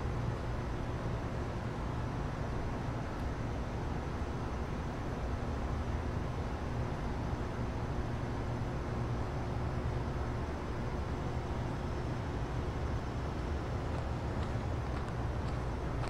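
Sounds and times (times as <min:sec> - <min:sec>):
distant vehicle rumble: 0:13.3 - 0:16.0.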